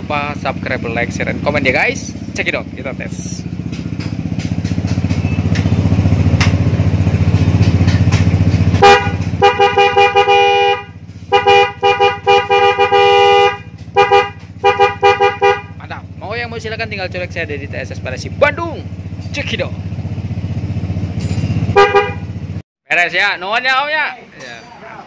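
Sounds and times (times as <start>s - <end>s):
scooter horn blaring two-note tone: 8.7s - 15.8s, 21.6s - 22.6s.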